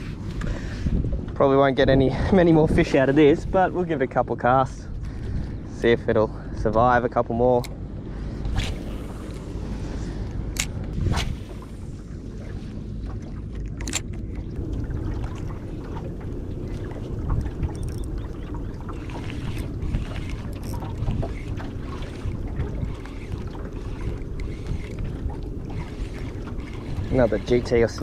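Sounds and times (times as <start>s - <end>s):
wind buffeting microphone: 0.0s - 13.0s, 13.8s - 28.0s
water slapping boat hull: 0.0s - 28.0s
sharp click: 13.8s - 14.1s.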